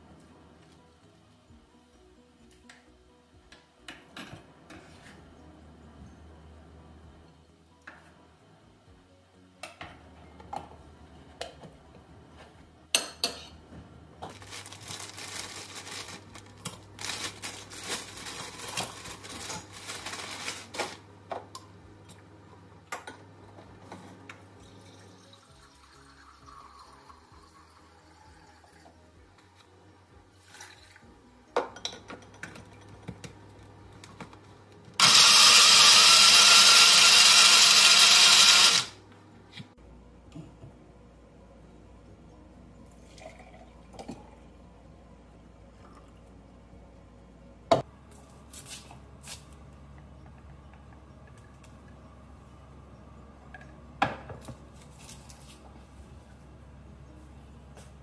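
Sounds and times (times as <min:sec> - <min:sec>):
blender running: 0:35.0 - 0:39.0.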